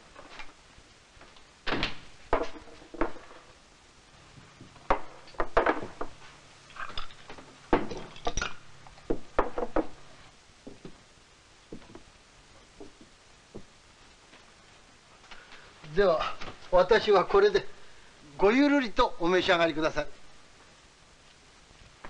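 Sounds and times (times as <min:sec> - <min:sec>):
sharp knocks and clatters: 0:01.6 - 0:03.6, 0:04.6 - 0:06.2, 0:06.8 - 0:10.0.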